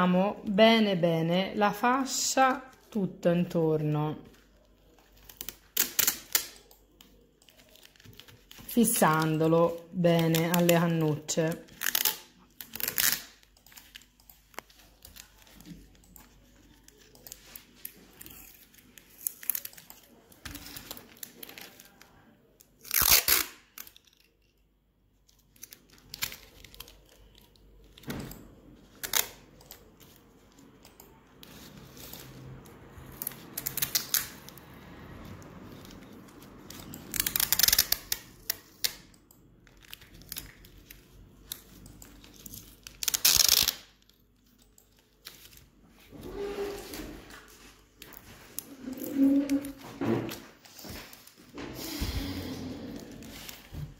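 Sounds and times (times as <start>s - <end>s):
rustling and handling: 4.1s - 38.9s, 39.6s - 53.9s.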